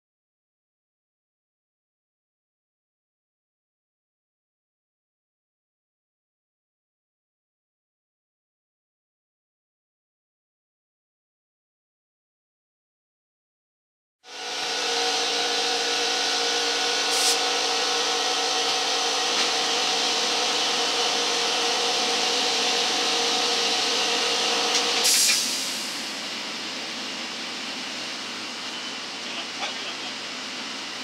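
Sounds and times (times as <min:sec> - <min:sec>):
fan-like hiss: 0:25.0 - 0:26.1.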